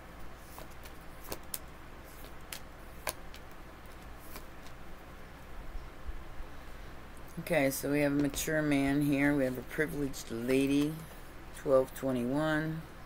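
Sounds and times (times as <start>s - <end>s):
faint low hum: 0.0s - 13.0s
cards snapping and tapping: 0.5s - 4.8s.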